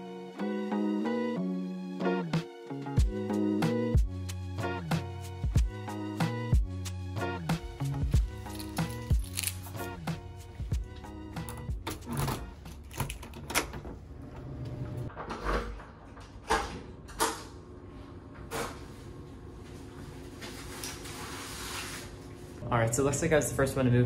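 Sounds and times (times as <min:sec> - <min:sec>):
keys rattling: 0:11.5 - 0:13.6.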